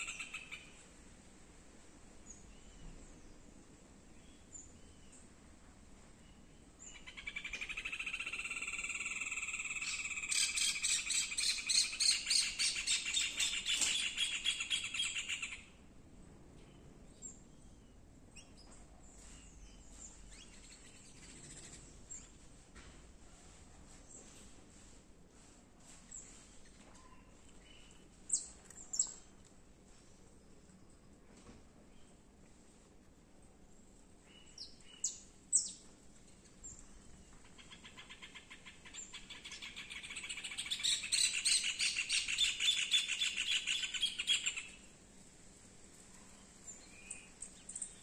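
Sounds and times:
faint bird chirps: 0:26.0 - 0:29.3.

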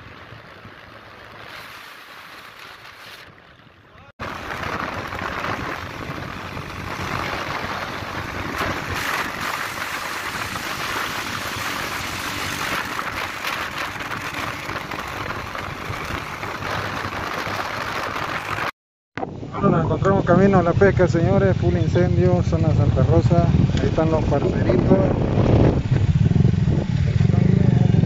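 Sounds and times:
wind rushing over microphone: 0:00.0 - 0:28.0
motorcycle engines running: 0:03.3 - 0:18.7, 0:19.9 - 0:28.0.

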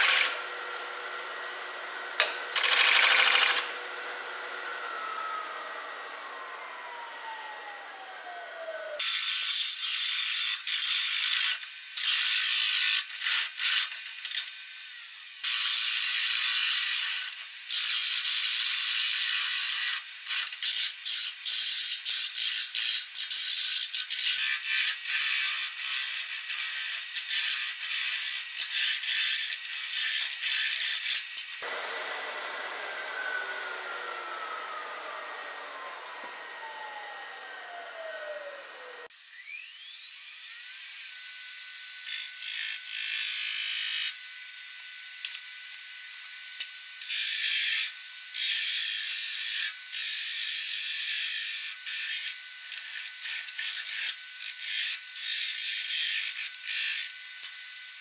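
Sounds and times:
lathe running hum: 0:00.0 - 0:09.6, 0:29.0 - 0:47.8.

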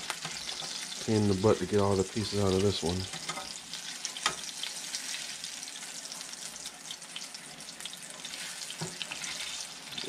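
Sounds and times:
fish sizzling in oil: 0:00.0 - 0:10.0
spatula scraping pan: 0:00.1 - 0:01.0, 0:08.2 - 0:10.0.

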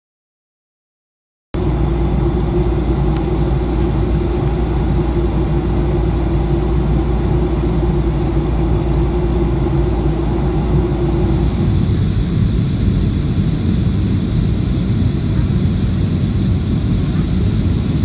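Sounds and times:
jet engine cabin noise: 0:01.6 - 0:18.0
low hum: 0:01.6 - 0:18.0
rushing air: 0:01.6 - 0:18.0.

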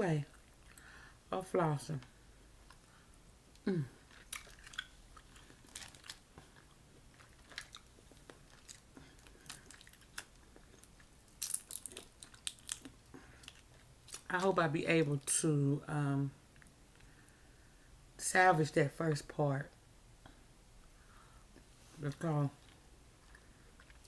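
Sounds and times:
chewing: 0:04.0 - 0:14.3, 0:22.6 - 0:24.0
crawfish shells cracking: 0:04.1 - 0:14.5.

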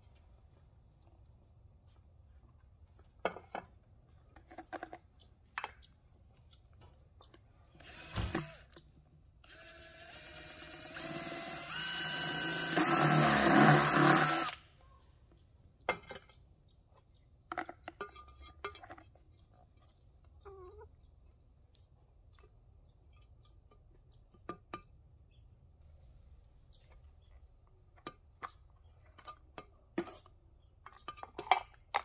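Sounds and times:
power drill whining: 0:07.8 - 0:08.8, 0:09.4 - 0:14.6.

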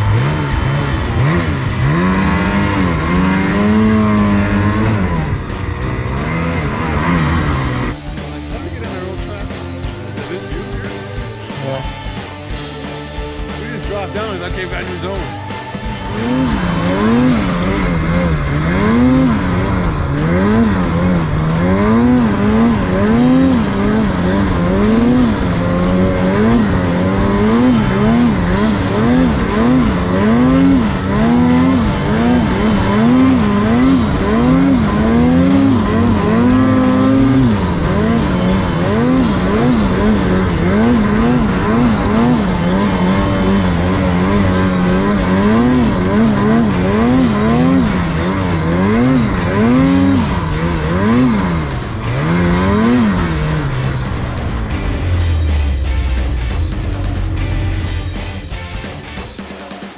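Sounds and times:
snowmobile engine revving: 0:00.0 - 0:59.6.

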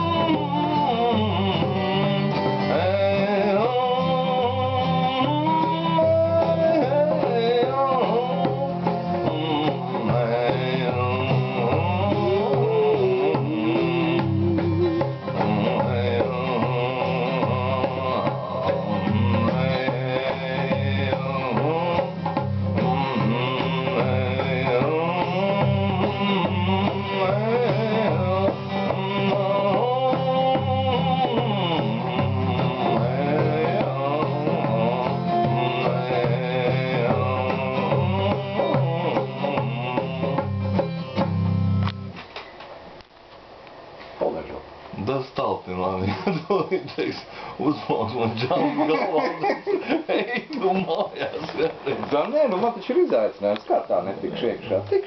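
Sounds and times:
acoustic guitar strumming: 0:00.0 - 0:42.7.

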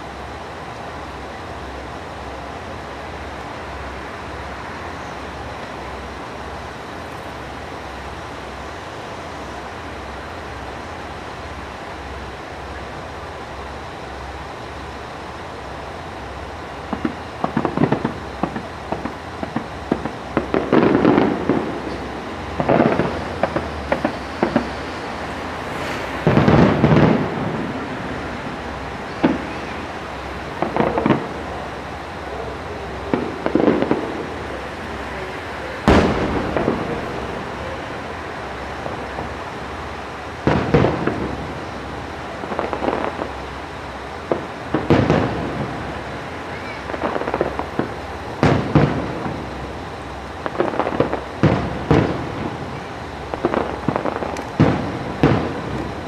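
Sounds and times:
fireworks booms and crackles: 0:00.0 - 0:56.0.

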